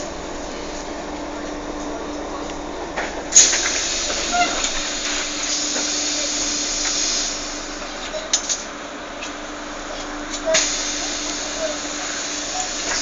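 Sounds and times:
steady hiss: 3.3 - 8.7, 10.5 - 13.0.

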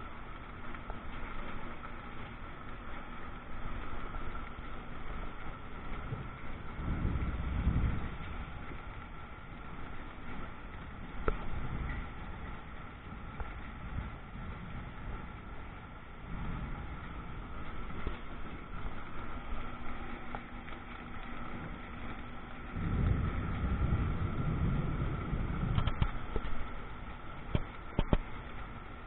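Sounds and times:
steady rain falling: 0.0 - 29.0
thunder rumbles: 6.1 - 9.1, 21.4 - 28.3.

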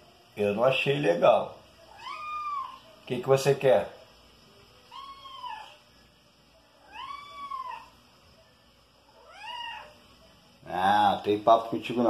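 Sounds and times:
kitten meowing: 1.9 - 2.8, 4.9 - 5.8, 6.9 - 7.9, 9.2 - 10.0.

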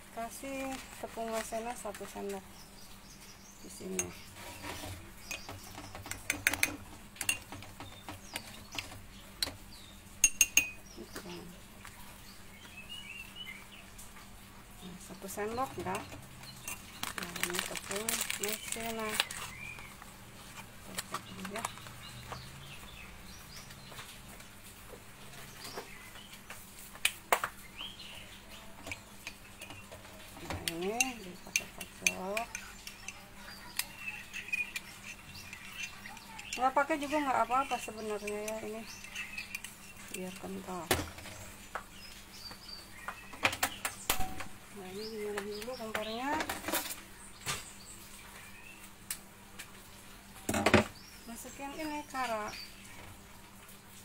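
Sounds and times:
metal spoon clinking against bowl: 10.2 - 10.8, 30.7 - 36.8, 37.6 - 39.8.

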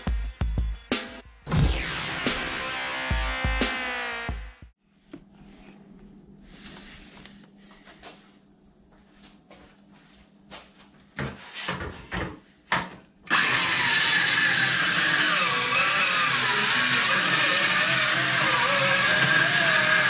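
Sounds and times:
circular saw cutting wood: 1.6 - 4.6, 13.3 - 20.0.

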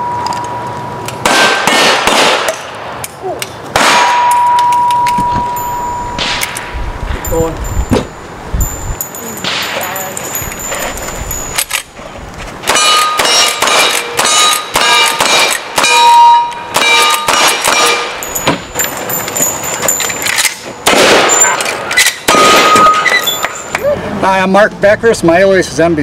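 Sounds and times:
steel plate ringing: 0.0 - 1.0, 3.9 - 6.6, 12.7 - 23.8
shotgun blast: 1.2 - 2.7, 3.7 - 4.3, 20.8 - 21.6, 22.2 - 23.1
rifle shots: 1.2 - 3.0, 3.7 - 4.4, 6.2 - 6.7, 12.6 - 16.0, 16.7 - 18.1, 20.8 - 23.2.

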